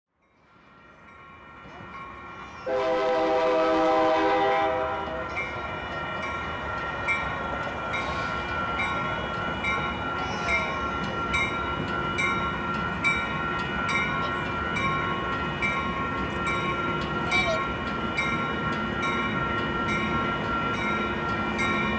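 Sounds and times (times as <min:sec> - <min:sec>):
rumble of passing train: 0:00.1 - 0:21.9
locomotive horn chord: 0:02.6 - 0:05.5.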